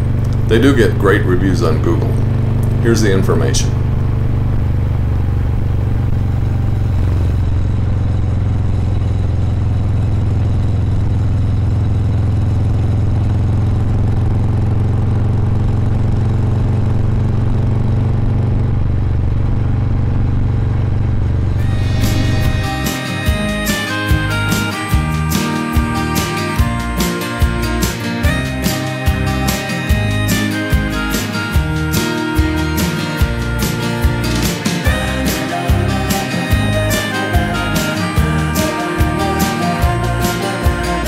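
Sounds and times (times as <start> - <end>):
music: 0.0 - 2.2, 21.6 - 41.0
motorcycle engine cruising: 0.0 - 41.0.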